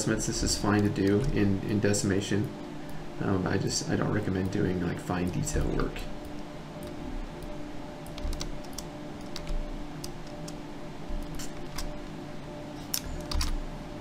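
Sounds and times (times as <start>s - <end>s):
faint electrical hum: 0.0s - 14.0s
keyboard keys clicking: 8.0s - 10.6s, 12.9s - 13.6s.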